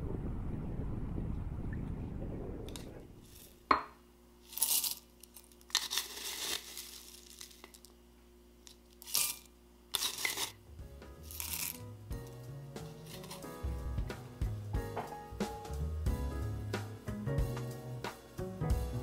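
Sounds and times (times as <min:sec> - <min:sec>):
corn flakes poured into a glass: 0:04.4 - 0:07.9, 0:08.7 - 0:10.6, 0:11.2 - 0:11.8.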